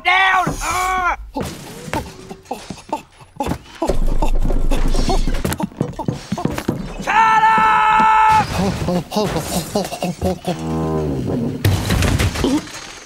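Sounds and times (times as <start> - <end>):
cartoon thuds and knocks: 3.4 - 6.9.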